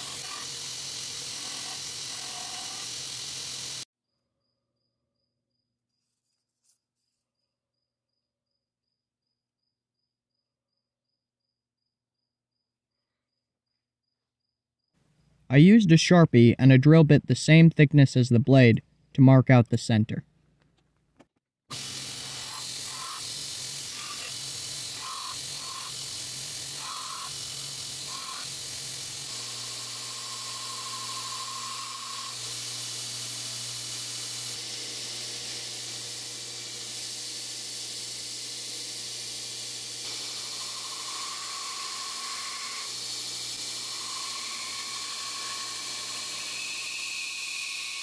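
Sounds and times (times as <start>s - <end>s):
steel blade grinding on belt: 0.0s - 3.8s, 21.7s - 48.0s
abrasive belt hissing: 0.0s - 3.9s, 21.7s - 38.1s
grinder motor hum: 0.0s - 3.9s, 21.7s - 48.0s.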